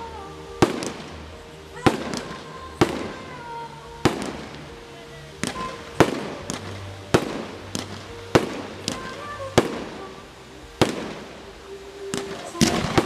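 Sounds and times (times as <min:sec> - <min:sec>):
fireworks bursting with sharp bangs: 0:00.6 - 0:01.2, 0:01.8 - 0:04.7, 0:05.4 - 0:10.1, 0:10.8 - 0:11.4, 0:12.0 - 0:13.0.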